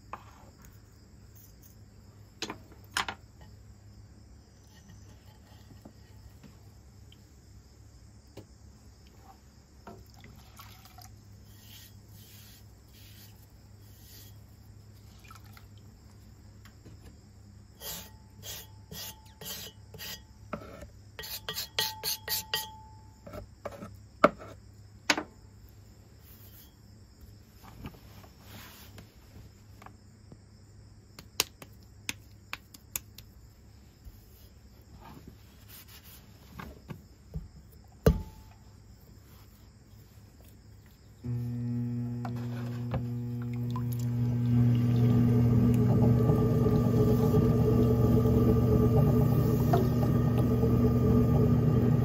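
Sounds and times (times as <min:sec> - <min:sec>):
insect trill: 0:07.2 - 0:23.6
steady hum: 0:41.2 - 0:52.0.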